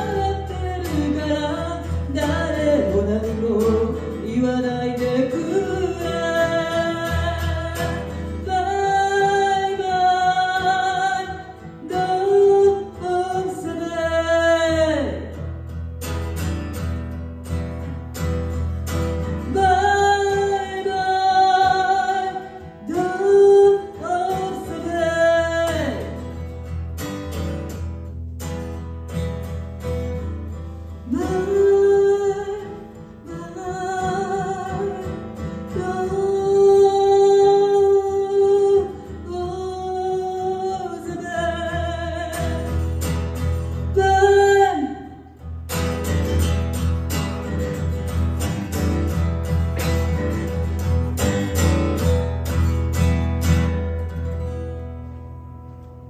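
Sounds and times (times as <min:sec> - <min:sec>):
woman singing into microphone: 0:00.0 - 0:15.3, 0:19.4 - 0:26.2, 0:31.0 - 0:42.8, 0:43.8 - 0:45.3
acoustic guitar: 0:00.0 - 0:56.0.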